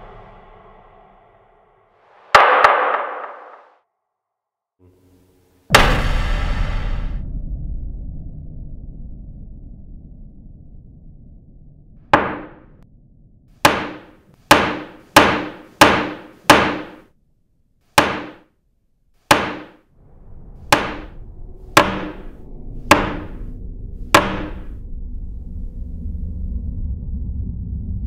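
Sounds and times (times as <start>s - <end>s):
low rumble: 0.0s - 2.1s, 5.2s - 13.6s, 19.9s - 28.0s
wooden gavel banging: 2.3s - 3.7s, 12.2s - 12.6s, 13.6s - 17.0s, 18.0s - 18.4s, 19.3s - 19.8s, 20.7s - 21.1s, 21.8s - 23.5s, 24.1s - 24.8s.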